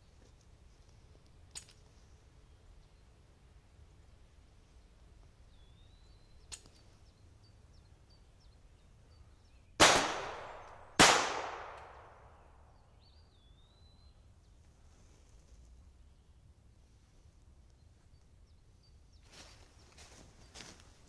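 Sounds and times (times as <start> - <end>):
faint bird chirps: 4.6 - 9.8, 12.0 - 17.0
sharp click: 6.4 - 6.8
pistol shots with echo: 9.8 - 12.5.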